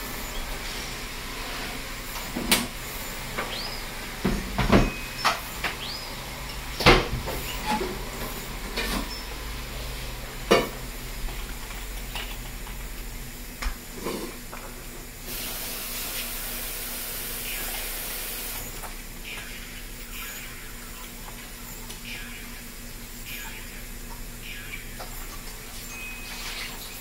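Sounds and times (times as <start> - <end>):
steady hiss: 15.2 - 18.8.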